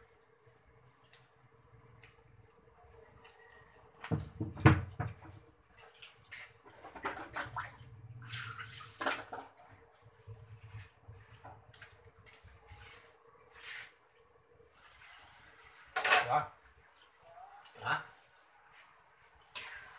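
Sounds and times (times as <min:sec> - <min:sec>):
cookware and utensils clinking: 0:15.9 - 0:16.4.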